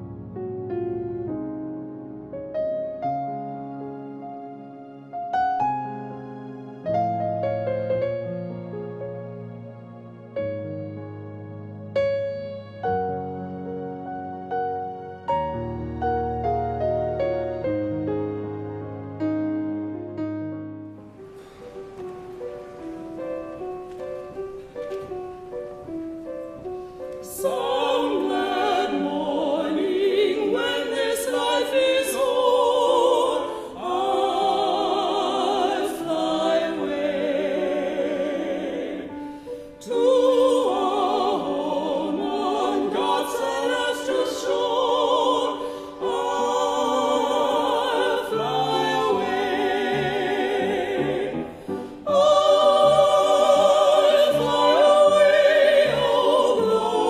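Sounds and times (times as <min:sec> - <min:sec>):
soloists singing in harmony: 0:21.4 - 0:57.0
church choir singing: 0:25.8 - 0:57.0.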